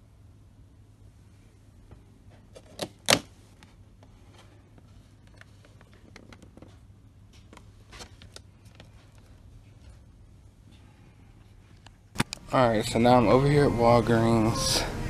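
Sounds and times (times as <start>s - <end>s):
handling clicks and rustles: 1.8s - 10.8s.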